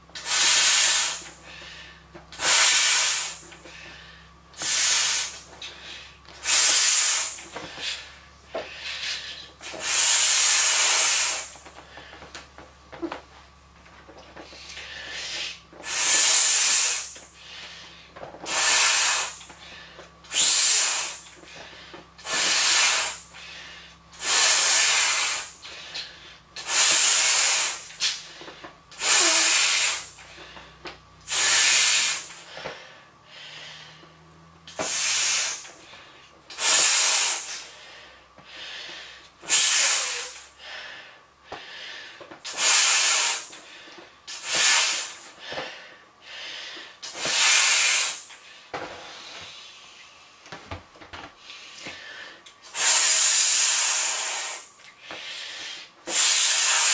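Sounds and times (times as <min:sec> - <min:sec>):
blowing air into a beach ball: 0:00.2 - 0:01.4, 0:02.4 - 0:03.5, 0:04.6 - 0:05.5, 0:06.4 - 0:08.0, 0:08.8 - 0:11.6, 0:14.6 - 0:17.3, 0:18.5 - 0:19.5, 0:20.3 - 0:21.4, 0:22.2 - 0:23.4, 0:24.2 - 0:28.3, 0:28.9 - 0:30.3, 0:31.3 - 0:32.6, 0:34.7 - 0:35.8, 0:36.5 - 0:38.0, 0:39.4 - 0:40.5, 0:42.4 - 0:43.7, 0:44.3 - 0:45.4, 0:47.0 - 0:48.4, 0:52.6 - 0:54.8, 0:55.6 - 0:56.9.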